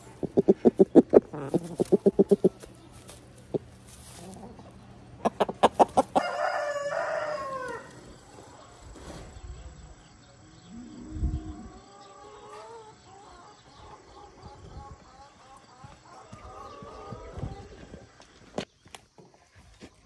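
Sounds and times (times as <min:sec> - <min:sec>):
rooster crowing: 0:06.0 - 0:08.1.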